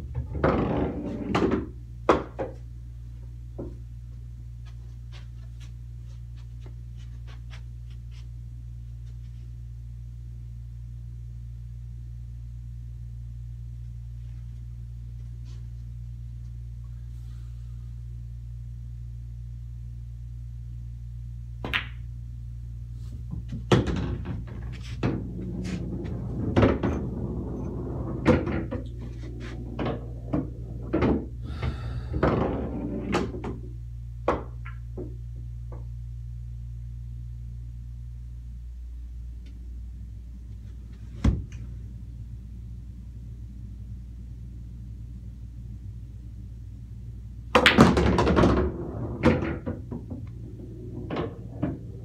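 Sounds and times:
balls rolling inside table: 0.0 - 2.6, 23.3 - 35.8, 47.5 - 52.0
pool balls clacking: 0.0 - 2.6, 23.3 - 35.8, 47.5 - 52.0
steady low hum: 0.0 - 52.0.

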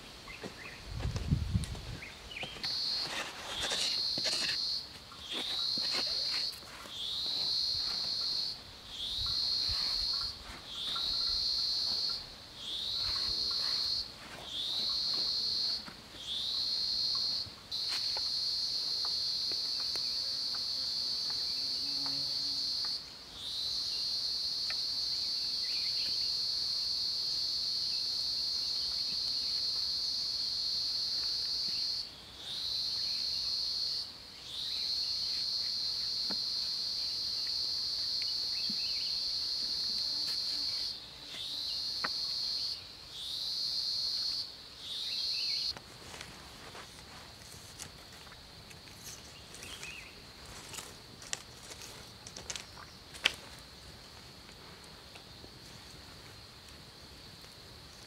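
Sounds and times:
digging in soil: 2.4 - 8.3
insect high shrill buzz: 2.6 - 28.8.

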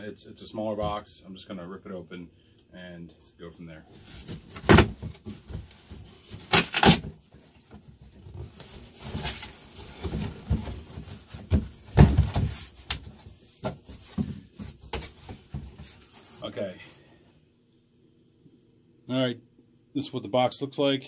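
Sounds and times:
cardboard box tearing: 6.3 - 7.1.

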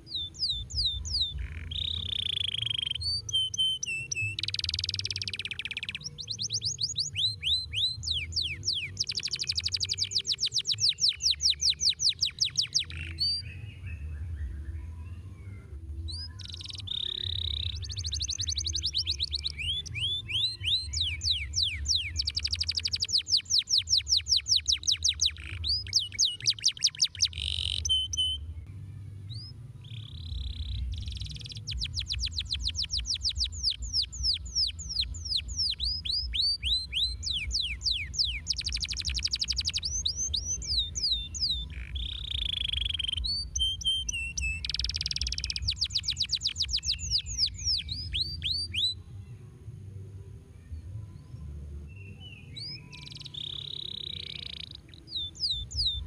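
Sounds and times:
canary singing trills: 0.0 - 28.6, 29.3 - 49.0, 51.9 - 56.0.

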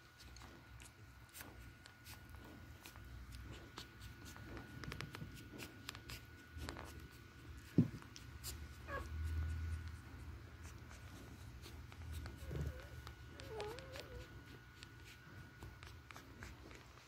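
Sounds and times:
puppies squeaking: 8.8 - 9.1.

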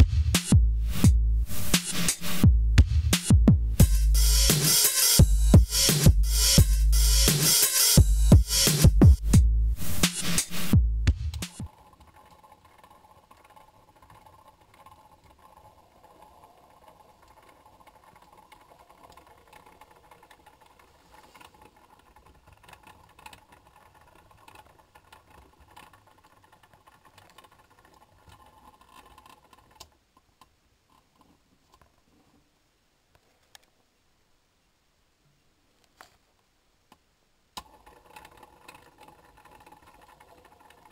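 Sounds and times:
electronic music: 0.0 - 11.7.

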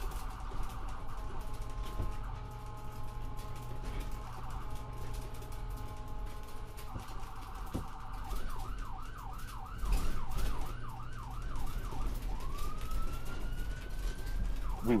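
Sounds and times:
siren yelping and wailing: 0.0 - 15.0.

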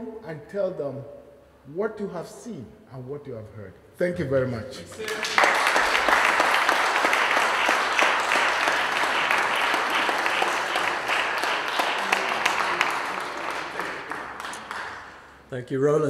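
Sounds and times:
audience applauding: 4.9 - 15.5.

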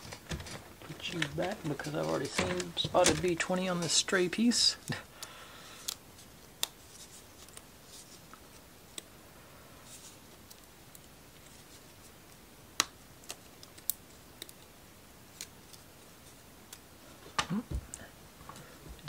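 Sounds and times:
plywood parts clicking and tapping: 0.0 - 4.0.

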